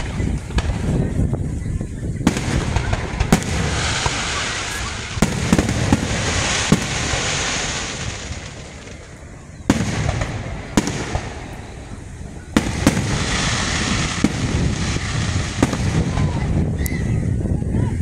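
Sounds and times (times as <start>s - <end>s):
crackle of firework stars: 0.0s - 17.0s
firework shells bursting with bangs: 2.2s - 16.6s.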